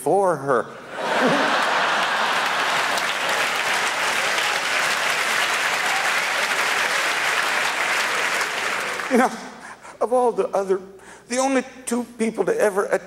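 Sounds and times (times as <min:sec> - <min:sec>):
audience applauding: 0:01.0 - 0:09.2.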